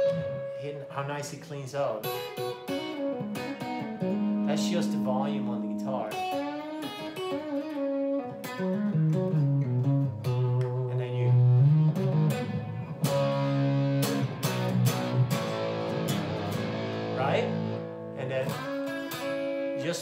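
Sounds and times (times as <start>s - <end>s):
electric guitar through fuzz pedal: 0.0s - 0.7s, 10.7s - 19.8s.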